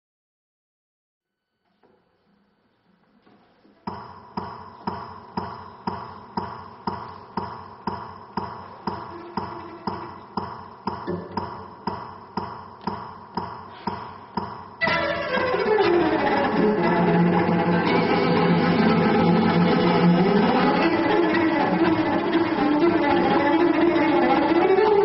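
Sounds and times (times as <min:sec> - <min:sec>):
metronome ticking: 0:03.9 - 0:15.7.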